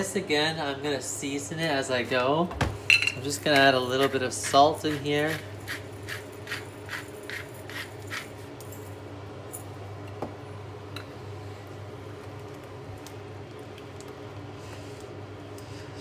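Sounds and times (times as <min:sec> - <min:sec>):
steady low hum: 0:00.0 - 0:16.0
salt grinder grinding: 0:04.0 - 0:08.4.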